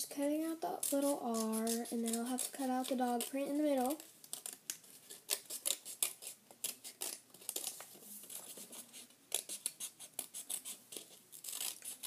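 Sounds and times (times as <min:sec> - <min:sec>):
scissors snipping paper: 0:00.8 - 0:12.0.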